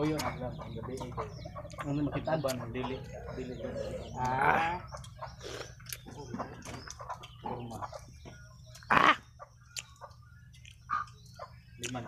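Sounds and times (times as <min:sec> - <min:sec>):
chickens clucking: 0:00.0 - 0:12.0
chicken harsh squawk: 0:08.9 - 0:09.2.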